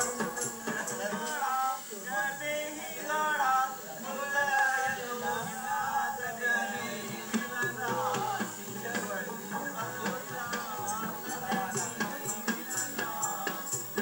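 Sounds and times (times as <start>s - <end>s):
song from television speaker: 0.0s - 14.0s.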